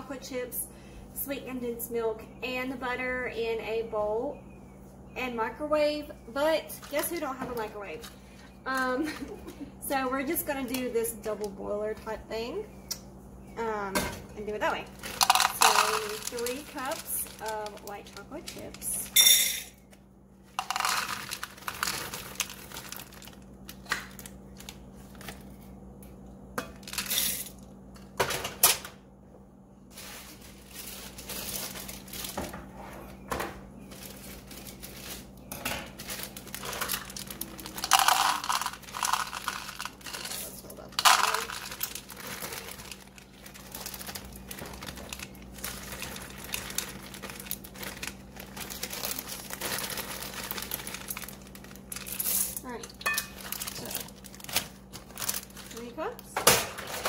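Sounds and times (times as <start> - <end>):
faint steady hum: 0.0 - 57.0
plastic bag crinkling: 14.7 - 19.2, 20.5 - 25.6, 29.9 - 32.4, 33.9 - 56.2
chocolate chips clattering into bowl: 15.0 - 19.7, 20.6 - 23.2, 26.8 - 27.5, 36.1 - 54.2.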